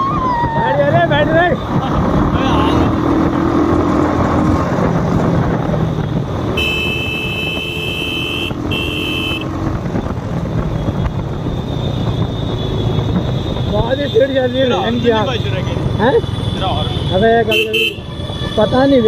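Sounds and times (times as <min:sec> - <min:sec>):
road noise: 0:00.0 - 0:19.0
vehicle horn: 0:06.5 - 0:09.5, 0:16.3 - 0:19.0.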